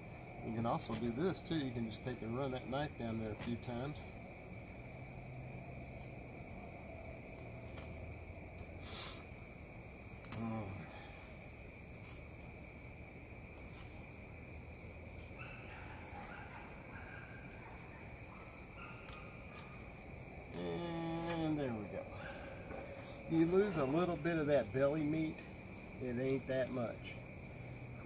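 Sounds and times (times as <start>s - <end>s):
night insects trilling: 0.0s - 28.0s
man's voice murmuring: 10.4s - 11.2s, 20.6s - 25.4s.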